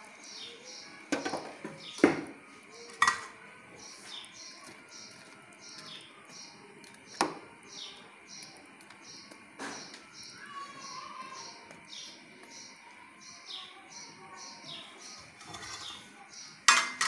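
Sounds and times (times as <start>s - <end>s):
ladle clanking on metal pot: 2.9s - 3.4s, 15.4s - 16.0s, 16.6s - 17.0s
bird chirping: 3.8s - 16.6s.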